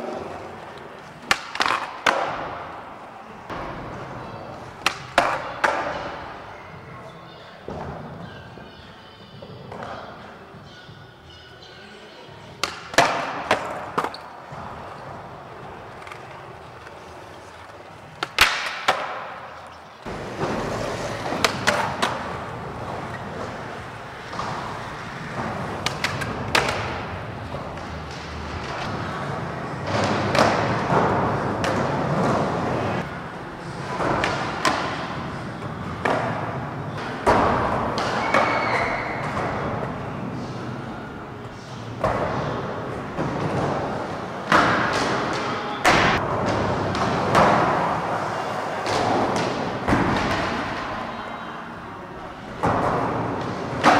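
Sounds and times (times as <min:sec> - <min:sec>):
skateboard slaps and landings: 0:01.2 - 0:02.6, 0:18.2 - 0:19.4, 0:24.2 - 0:29.0
skateboards rolling on ramps: 0:13.0 - 0:51.2.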